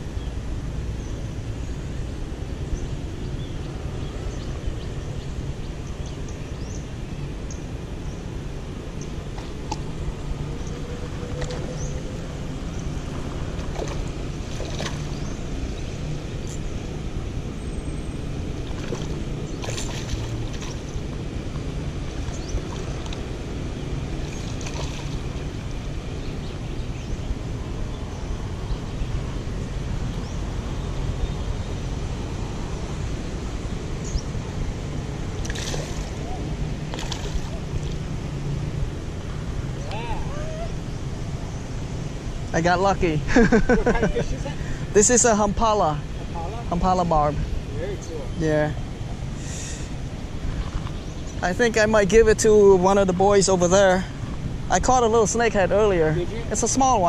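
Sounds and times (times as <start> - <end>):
steady low rumble: 0.0 - 57.0
fish splashing at water surface: 13.6 - 15.2, 18.6 - 20.9, 24.2 - 25.5, 35.4 - 36.2, 36.9 - 38.0.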